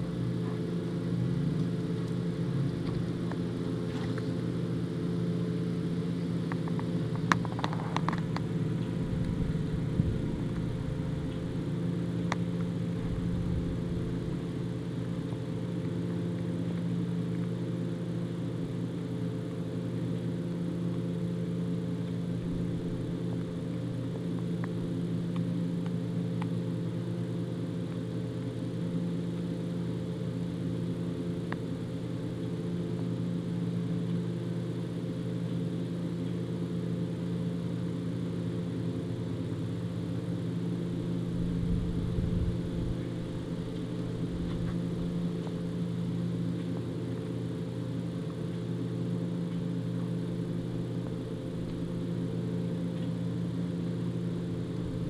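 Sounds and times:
low machine hum: 0.0s - 55.0s
low rumble: 7.3s - 14.8s, 41.2s - 45.2s.

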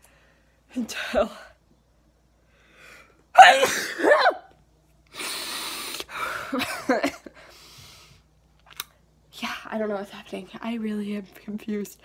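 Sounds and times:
woman sneezing: 3.4s - 4.5s
woman's hissing breath: 5.1s - 6.4s.

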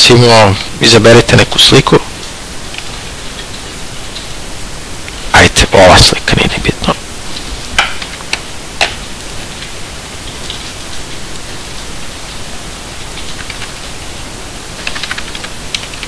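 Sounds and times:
background hiss: 0.0s - 16.0s
keyboard and mouse clicks: 13.2s - 13.8s, 14.8s - 16.0s.

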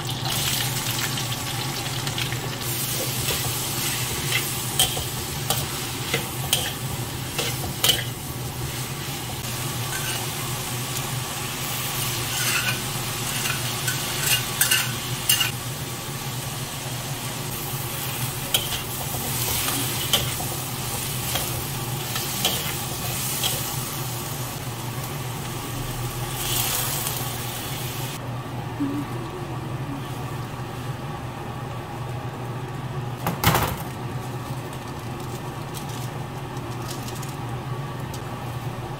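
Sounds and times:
food sizzling in a wok: 0.0s - 28.2s.

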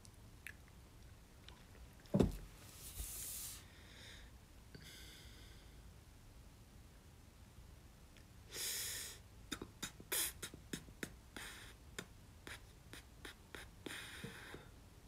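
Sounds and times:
arm thumping on a table: 2.1s - 2.4s.

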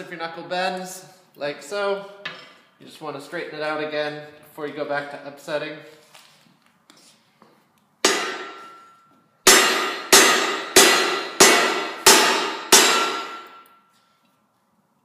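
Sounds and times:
metallic clangs with ringing: 8.0s - 13.9s.

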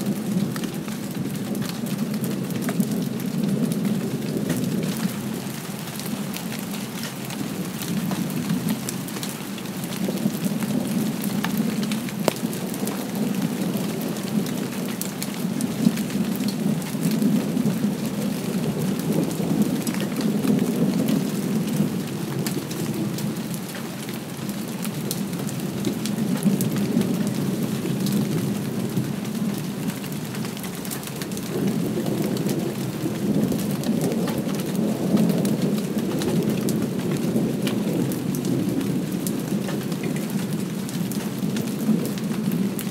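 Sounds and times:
light rain falling: 0.0s - 42.9s
raindrops ticking: 0.0s - 42.9s
distant thunder rumble: 31.3s - 42.9s.

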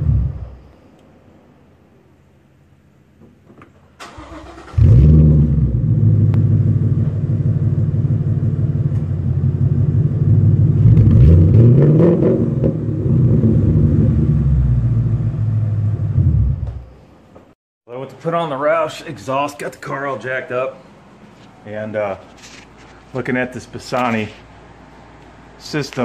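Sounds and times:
engine revving: 0.0s - 0.6s, 4.0s - 16.9s
car engine starting and idling: 3.6s - 17.2s.

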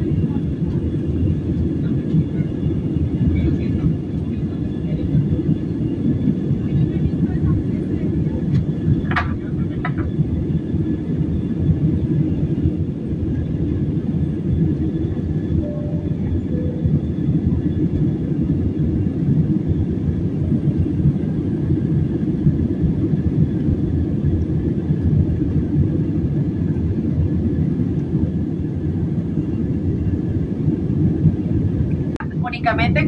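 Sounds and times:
jet engines rumbling: 0.0s - 33.0s
faint high hum: 15.5s - 17.8s.

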